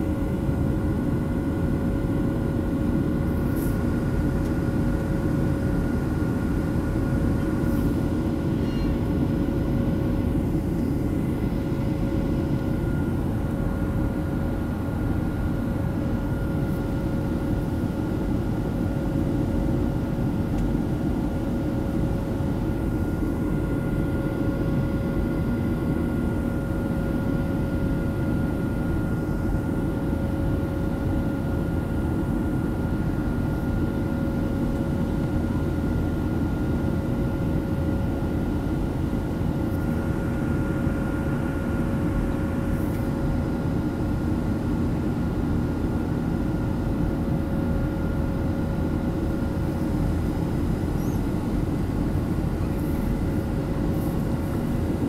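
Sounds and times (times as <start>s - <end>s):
jet engine roar: 0.0s - 55.0s.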